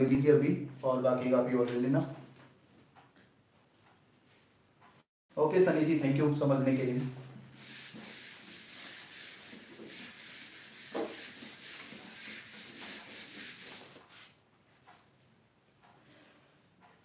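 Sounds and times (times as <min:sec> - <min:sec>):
duster rubbing on a whiteboard: 0:07.5 - 0:14.4.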